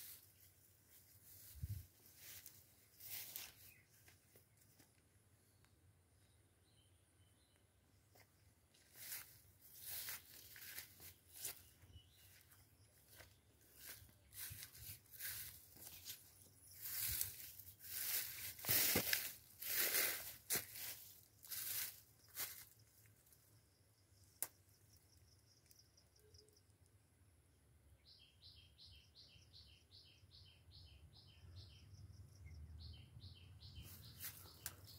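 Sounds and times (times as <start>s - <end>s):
dry grass crunching underfoot: 0.0s - 4.4s, 8.7s - 23.3s, 33.8s - 34.9s.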